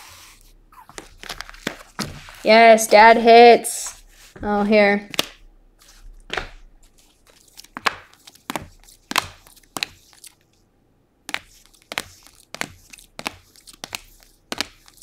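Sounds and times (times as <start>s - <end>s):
cards flipping with sharp slaps: 0.9s - 2.4s, 5.1s - 10.5s, 11.2s - 15.0s.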